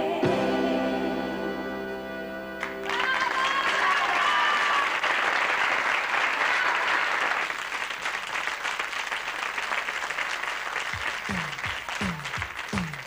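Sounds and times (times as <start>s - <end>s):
audience applauding: 2.6s - 13.0s
drum beat of low thuds: 11.0s - 13.0s.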